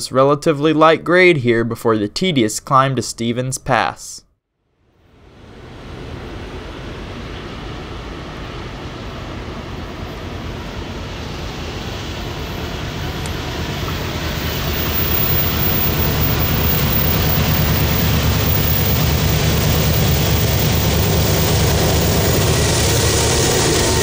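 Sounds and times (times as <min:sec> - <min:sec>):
diesel locomotives rumbling: 0:05.4 - 0:24.0.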